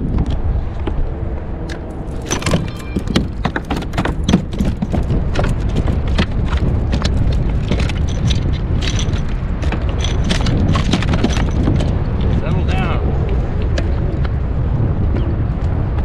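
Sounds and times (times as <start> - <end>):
low rumble: 0.0 - 16.0
irregular clicking and knocking: 1.7 - 12.5.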